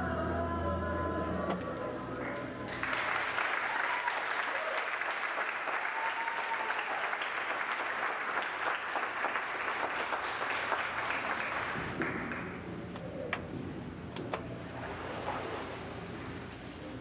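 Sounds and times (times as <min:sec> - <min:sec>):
audience applauding: 0:02.0 - 0:12.6
low steady rumble: 0:11.5 - 0:17.0.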